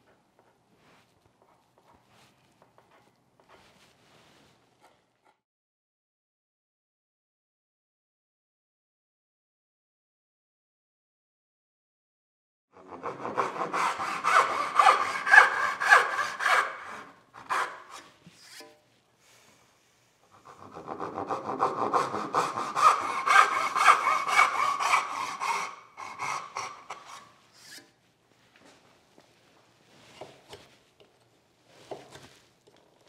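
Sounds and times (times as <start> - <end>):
hand saw cutting wood: 12.8 - 18.8, 20.3 - 27.9.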